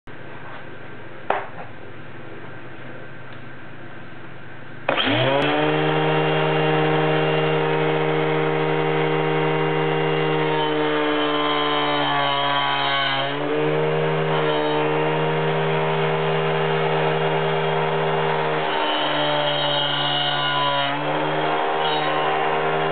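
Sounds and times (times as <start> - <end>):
angle grinder cutting plywood: 4.9 - 22.9.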